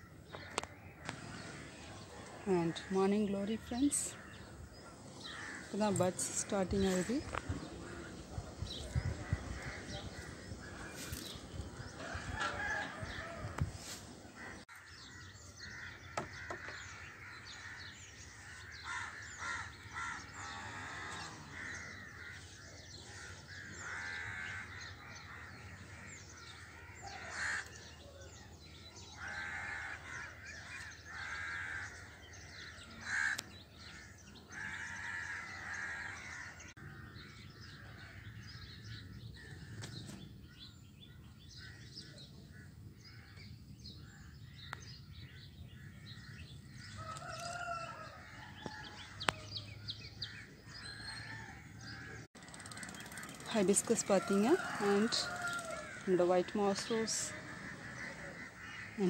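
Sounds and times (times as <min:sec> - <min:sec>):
crows cawing: 0:02.6 - 0:13.6, 0:14.3 - 0:40.7, 0:41.5 - 0:59.0
small birds chirping: 0:14.4 - 0:59.0.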